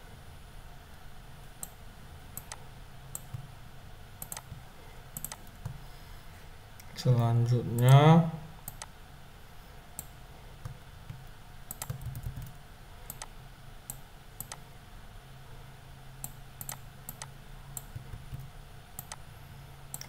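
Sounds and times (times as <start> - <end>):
faint low hum: 0.0 - 20.0
computer mouse clicking: 2.4 - 3.5, 4.2 - 4.6, 5.2 - 5.8, 8.7 - 8.9, 10.0 - 13.3, 13.9 - 14.6, 16.2 - 19.2.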